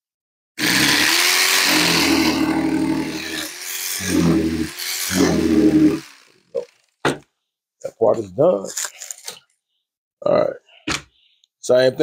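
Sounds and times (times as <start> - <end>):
electric fillet knife cutting: 0.6 - 6.9.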